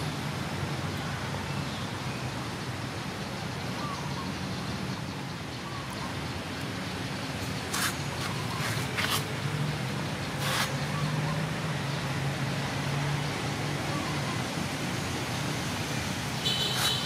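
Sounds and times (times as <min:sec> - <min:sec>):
distant road traffic hum: 0:00.0 - 0:17.0
short hissing noises: 0:07.7 - 0:09.3, 0:10.4 - 0:10.8, 0:16.4 - 0:17.0.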